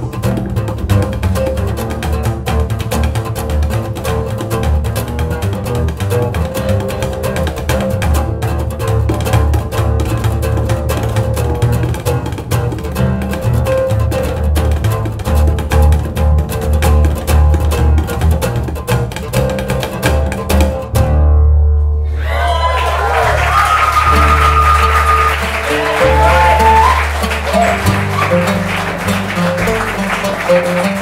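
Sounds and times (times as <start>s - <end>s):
oud plucking: 0.0s - 22.2s, 23.2s - 31.0s
double bass pizzicato: 0.0s - 22.4s, 23.8s - 31.0s.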